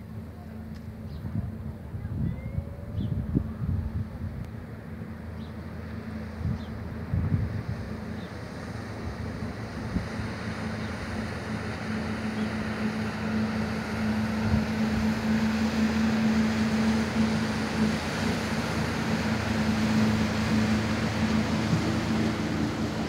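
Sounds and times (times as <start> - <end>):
boat wake breaking on water: 0.0 - 23.0
motorboat engine humming: 0.0 - 23.0
wind on microphone: 1.0 - 4.7, 6.3 - 8.4, 13.0 - 23.0.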